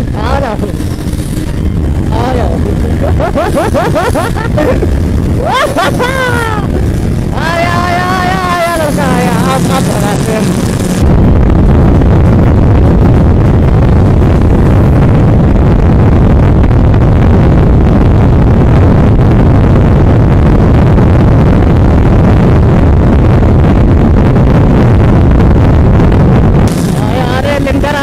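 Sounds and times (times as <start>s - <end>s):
loud wind rush on microphone: 0.0s - 28.0s
motorcycle engine at full throttle: 0.0s - 28.0s.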